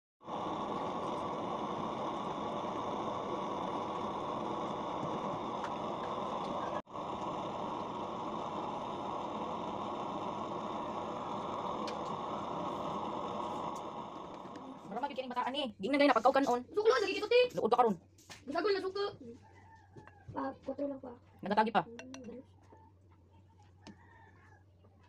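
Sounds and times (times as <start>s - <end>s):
soup cooking on gas burner: 0.2s - 16.5s.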